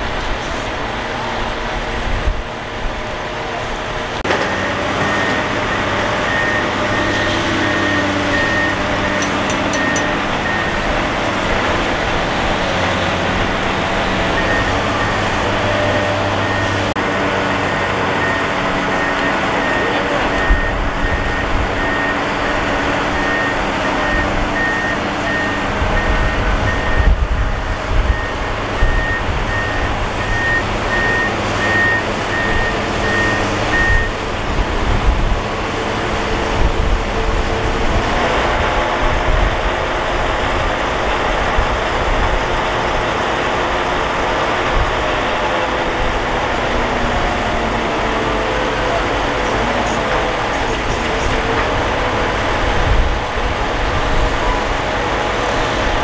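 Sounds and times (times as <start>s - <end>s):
diesel machinery running: 0.0s - 56.0s
backup alarm beeping: 4.5s - 10.9s, 17.7s - 27.2s, 28.1s - 34.2s.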